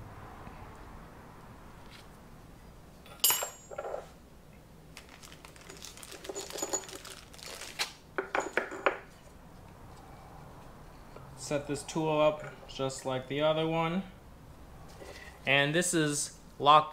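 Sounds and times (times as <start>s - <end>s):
metal parts clinking: 3.1s - 4.0s, 5.5s - 7.8s.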